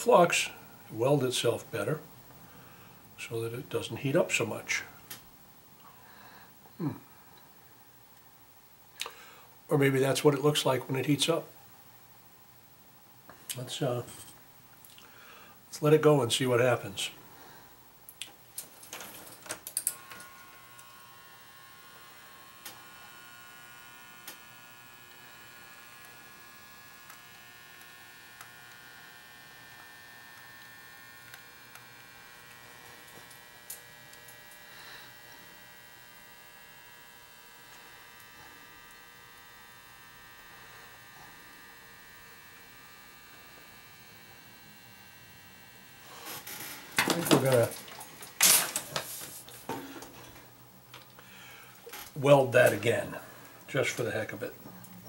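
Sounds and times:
toaster electrical hum: 0.0s - 55.0s
thin high whine: 13.3s - 17.9s, 18.9s - 55.0s.

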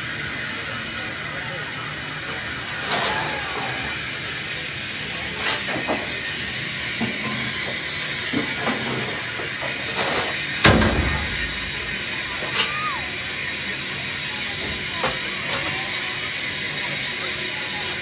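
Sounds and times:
steam hissing: 0.0s - 18.0s
heavy low thump: 10.7s - 12.4s.

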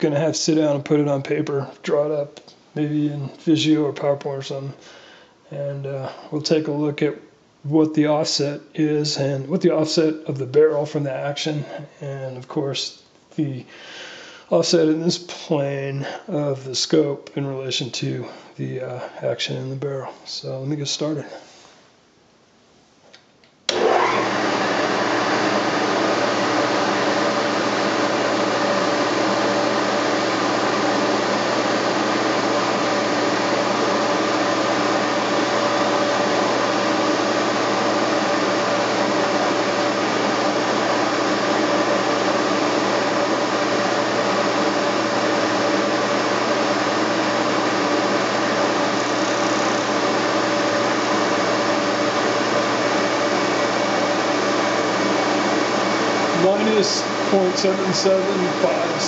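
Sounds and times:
milling machine motor humming: 23.7s - 59.0s.

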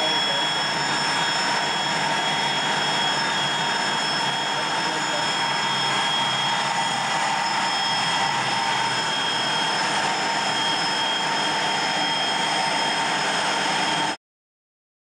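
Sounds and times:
jet engine whining roar: 0.0s - 14.2s.

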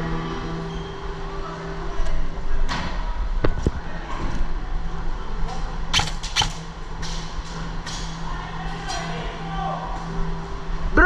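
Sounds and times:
airsoft rifle shots: 5.9s - 6.8s.

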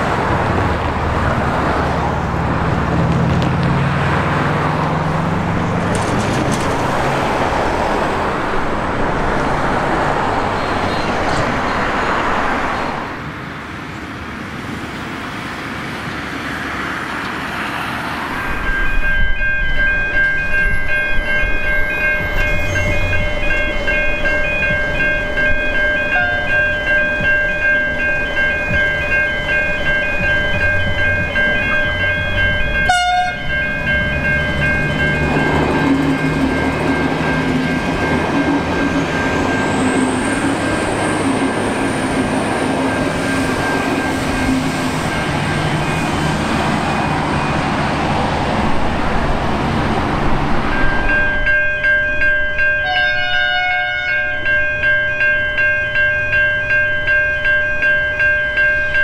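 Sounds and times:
diesel train engine hum: 0.0s - 59.0s
train wheel noise: 0.0s - 59.0s
level crossing bells ringing: 18.1s - 47.7s, 50.7s - 59.0s.

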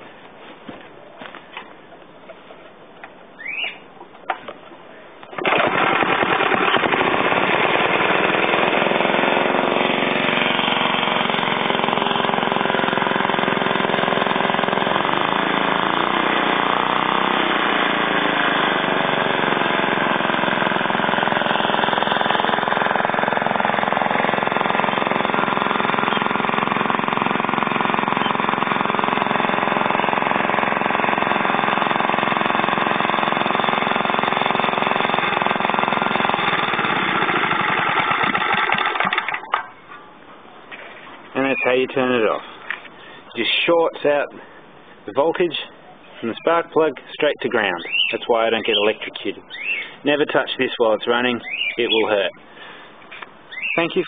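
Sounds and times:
recoil starter pull: 5.2s - 39.8s
small engine sputtering and running: 5.4s - 39.6s.

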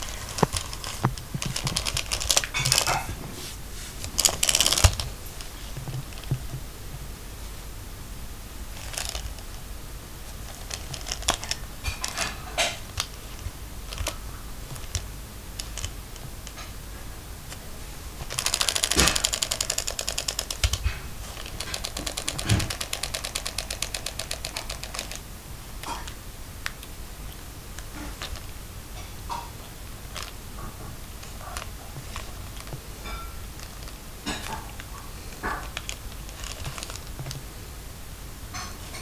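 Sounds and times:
clockwork clicks: 18.3s - 20.8s
wind-up toy clockwork ticking: 18.3s - 20.8s, 21.4s - 25.2s.

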